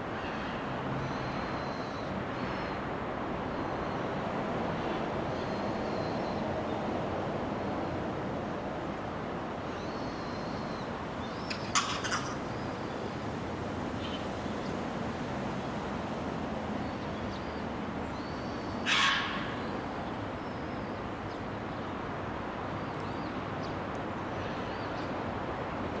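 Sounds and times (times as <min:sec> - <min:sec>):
distant background hum: 0:09.7 - 0:22.1
harsh bird call: 0:18.8 - 0:19.8.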